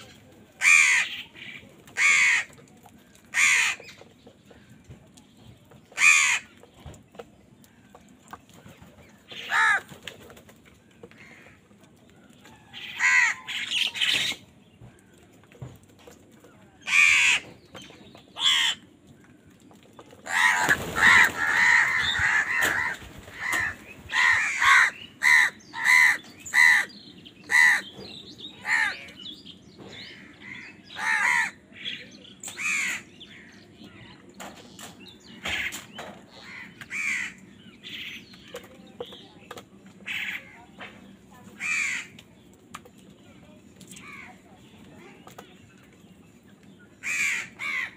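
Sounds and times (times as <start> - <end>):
crows cawing: 0.6 - 1.3, 2.0 - 2.6, 3.3 - 4.0, 6.0 - 6.6, 9.4 - 9.9, 12.8 - 14.2, 16.8 - 17.5, 18.4 - 18.8, 20.2 - 26.9, 27.5 - 27.9, 28.6 - 29.1, 30.1 - 31.6, 32.5 - 33.6, 35.4 - 37.4, 41.6 - 42.2, 47.0 - 47.9.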